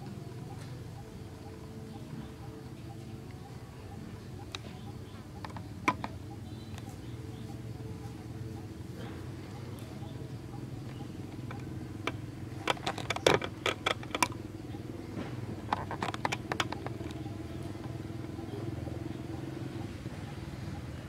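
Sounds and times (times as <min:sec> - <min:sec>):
low engine hum: 0:00.0 - 0:21.0
sharp clicks and crackles: 0:10.9 - 0:14.9, 0:15.6 - 0:18.3.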